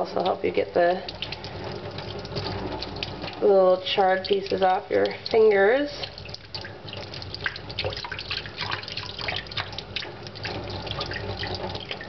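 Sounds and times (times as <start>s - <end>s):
faucet water splashing into sink: 0.0s - 12.0s.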